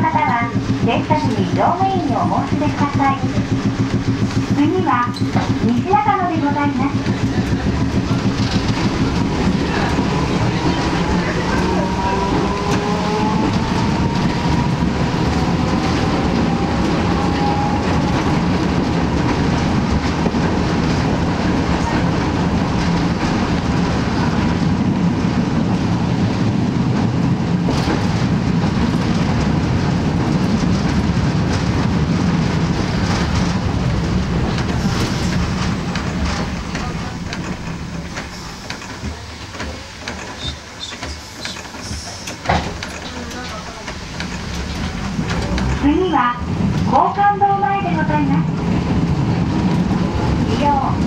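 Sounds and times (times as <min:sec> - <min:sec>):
streetcar motors and wheels rumbling: 0:00.0 - 0:51.0
rising whine: 0:09.3 - 0:18.6.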